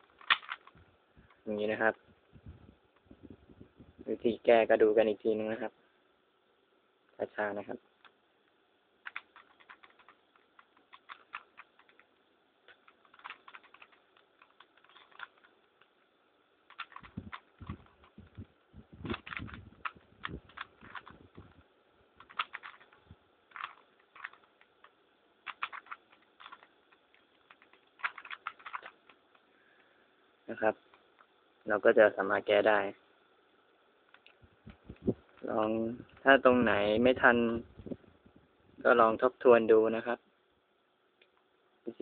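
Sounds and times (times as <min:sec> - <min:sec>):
puzzle cube layers clicking: 0:00.0 - 0:01.4, 0:09.0 - 0:21.6, 0:22.2 - 0:29.4.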